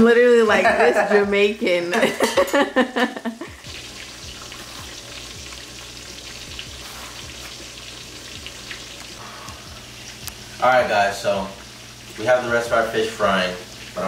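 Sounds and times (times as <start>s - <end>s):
voice: 0.0s - 2.2s, 10.6s - 11.6s, 12.2s - 14.0s
fish frying in oil: 2.6s - 14.0s.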